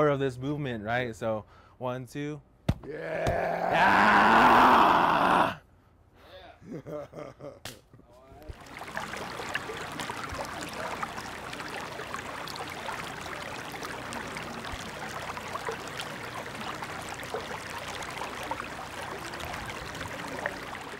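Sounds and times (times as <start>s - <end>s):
creek babbling over stones: 8.4s - 20.9s.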